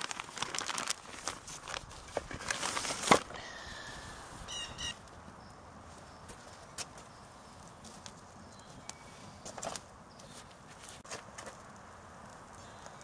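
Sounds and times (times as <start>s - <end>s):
plastic bag crinkling and rustling: 0.0s - 3.4s
bird calling: 3.4s - 6.3s.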